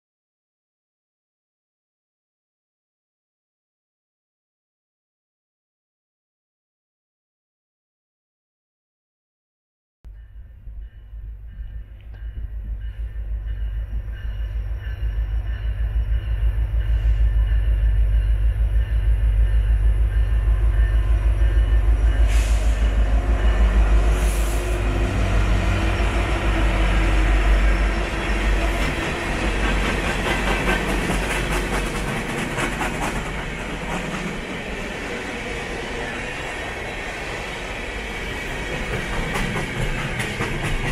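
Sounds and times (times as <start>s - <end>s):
locomotive engines rumbling: 10.2s - 40.9s.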